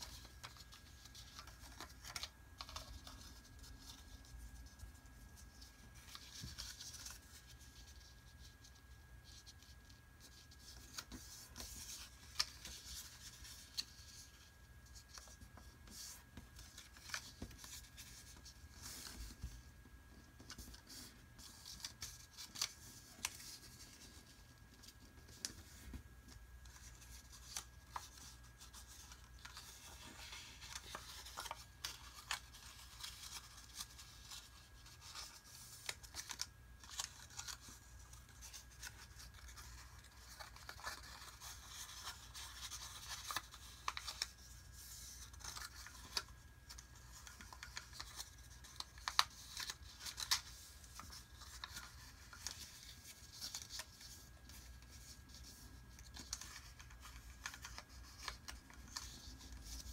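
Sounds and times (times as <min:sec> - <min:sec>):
paper being folded and creased: 0:00.0 - 0:59.9
fingers scraping along paper folds: 0:20.2 - 0:59.9.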